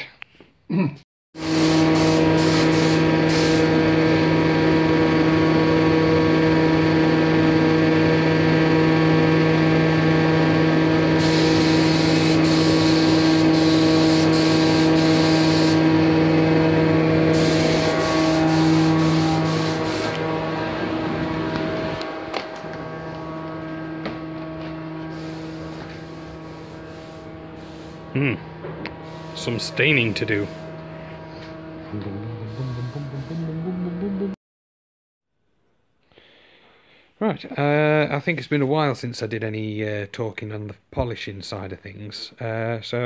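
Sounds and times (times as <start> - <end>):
spray gun air hiss: 1.4 - 3.8, 11.2 - 15.9, 17.3 - 20.2, 25.1 - 28.2, 29.0 - 30.7
steady machine hum: 1.4 - 34.4.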